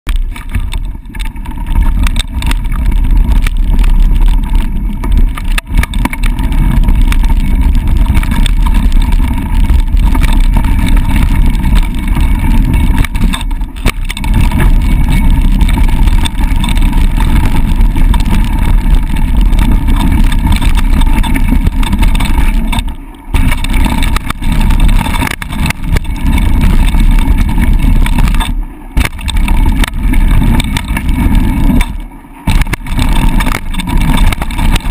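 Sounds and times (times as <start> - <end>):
tyres rolling over gravel: 0.1 - 34.9
wind rumble on microphone: 0.1 - 34.9.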